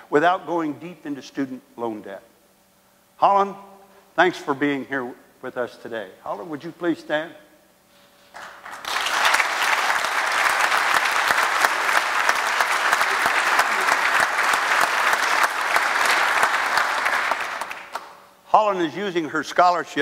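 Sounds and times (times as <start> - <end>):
audience applauding: 8.4 - 18.2.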